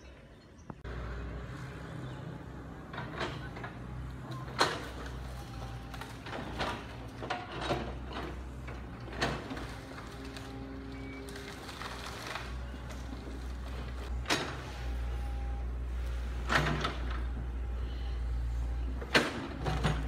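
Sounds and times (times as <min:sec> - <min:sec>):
diesel engine running: 0:00.8 - 0:20.0
branches cracking: 0:09.2 - 0:14.1.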